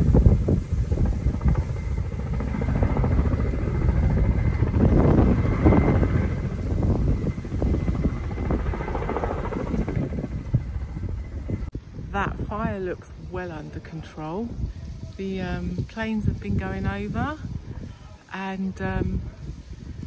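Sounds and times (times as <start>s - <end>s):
helicopter rotor chop: 0.0s - 12.6s.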